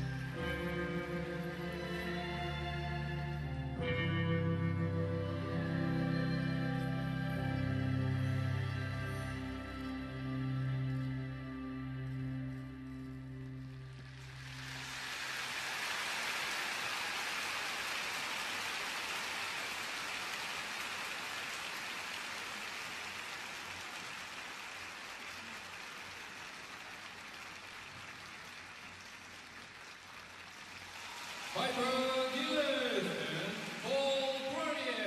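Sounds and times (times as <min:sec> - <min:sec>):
crowd applauding: 0:11.9 - 0:35.0.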